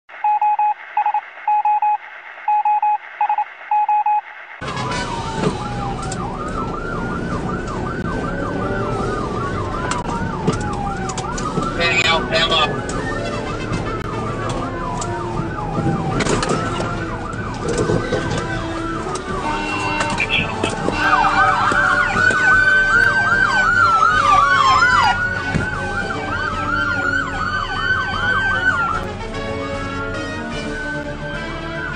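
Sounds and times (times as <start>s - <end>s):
road noise: 0.1s - 31.9s
short electronic beeps: 0.2s - 4.4s
police siren wailing and yelping: 0.2s - 29.1s, 30.2s - 31.9s.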